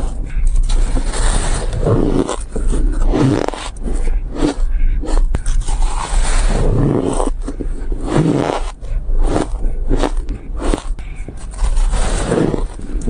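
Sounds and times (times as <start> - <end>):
crunching shaved ice: 0.7 - 3.8, 8.0 - 13.0.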